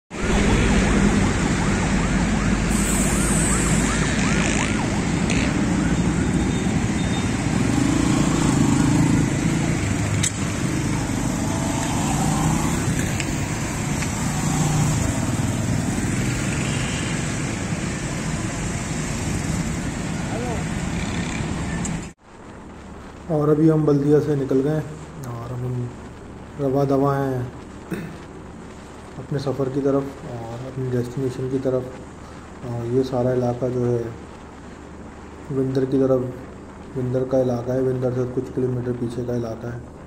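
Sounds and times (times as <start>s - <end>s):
car engine and road noise: 0.1s - 23.4s, 27.5s - 30.2s, 33.7s - 37.4s.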